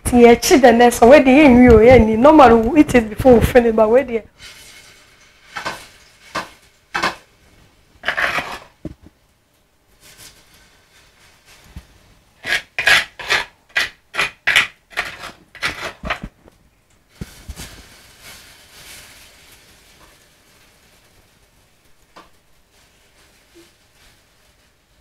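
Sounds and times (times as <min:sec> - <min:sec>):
metal spoon scraping frying pan: 0:04.4 - 0:07.3, 0:08.0 - 0:08.8, 0:12.4 - 0:16.2.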